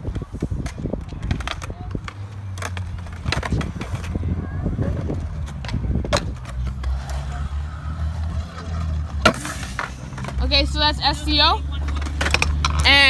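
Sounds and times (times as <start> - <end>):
scooter clacking on ground: 0.0 - 7.3, 11.7 - 13.0
scooter wheels rolling on concrete: 0.0 - 13.0.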